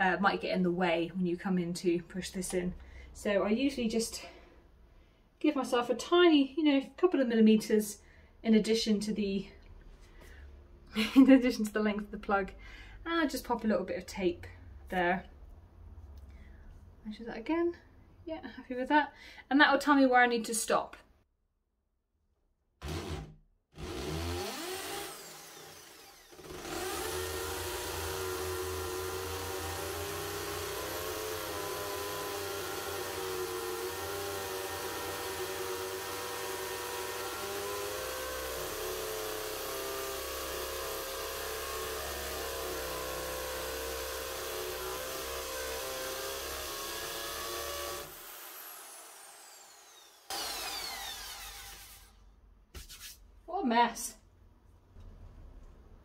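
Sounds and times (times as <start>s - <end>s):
hammer drill boring into masonry: 22.8s - 52.2s.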